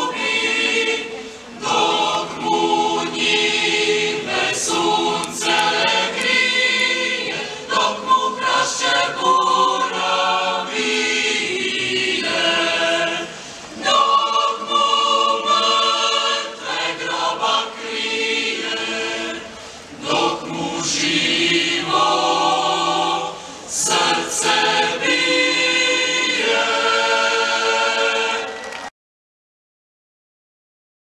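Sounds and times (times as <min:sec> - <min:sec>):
choir singing held notes: 0:00.0 - 0:28.9.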